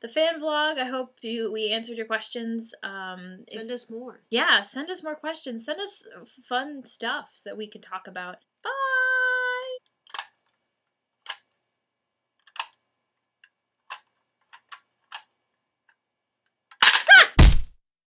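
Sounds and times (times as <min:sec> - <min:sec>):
plastic toy teeth clicking: 0:16.7 - 0:17.1
brief high-pitched cry: 0:16.9 - 0:17.4
heavy thump: 0:17.3 - 0:17.7.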